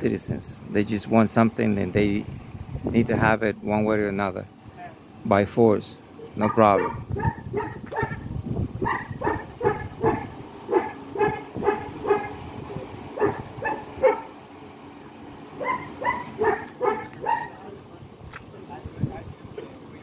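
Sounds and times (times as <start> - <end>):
dog barking: 6.4 - 8.2, 8.8 - 12.4, 13.2 - 14.3, 15.6 - 17.6.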